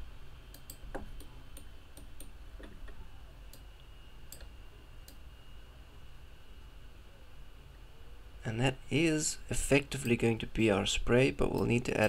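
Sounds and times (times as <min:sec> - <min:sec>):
faint low hum: 0:00.0 - 0:12.0
computer mouse clicking: 0:00.5 - 0:03.7.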